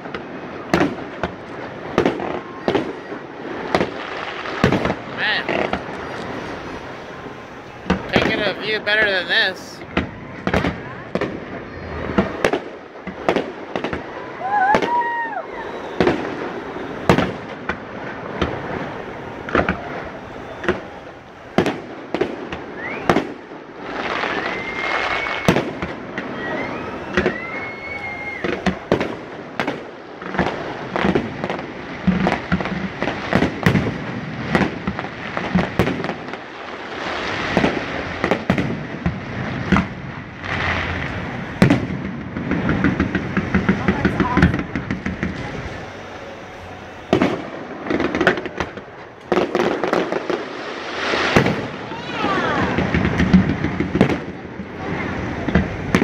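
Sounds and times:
firework crackling: 0.0 - 56.0
firework shells bursting: 0.0 - 56.0
firework whistling: 0.0 - 56.0.

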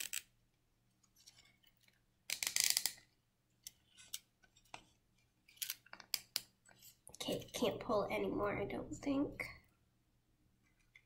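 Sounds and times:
zip tie ratcheting clicks: 2.3 - 3.0.

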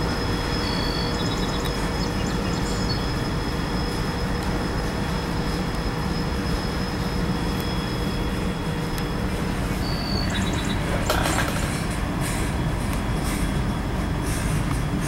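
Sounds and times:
freight train rumbling past: 0.0 - 15.0
high wheel squeaks: 2.4 - 11.9.

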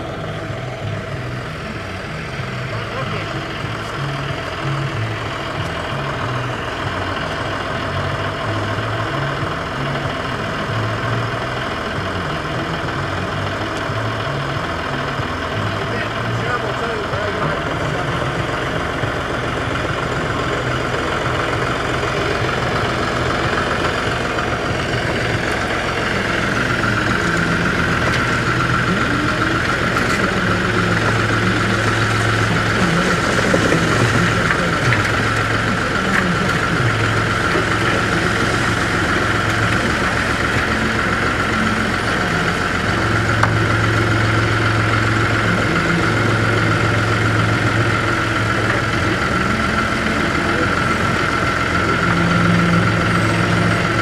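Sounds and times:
tractor diesel engine running: 0.0 - 54.0
steady high whine: 12.0 - 54.0.

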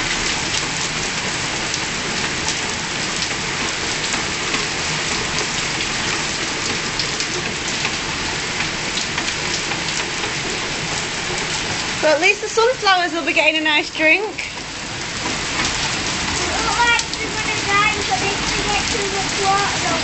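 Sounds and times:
heavy rain on paving: 0.0 - 20.0.

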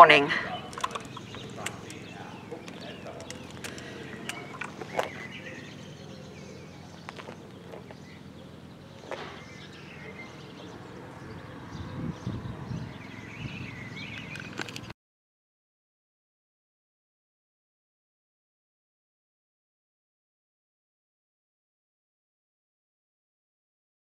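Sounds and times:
small birds chirping: 0.0 - 15.0
steady low hum: 0.1 - 14.5
sharp clicks: 0.7 - 5.2, 14.1 - 14.9.

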